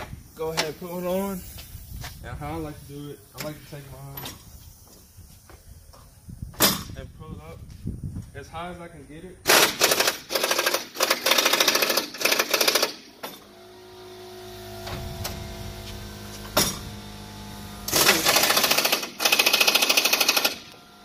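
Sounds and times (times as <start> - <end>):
impact wrench rattling: 9.5 - 13.4, 17.9 - 20.8.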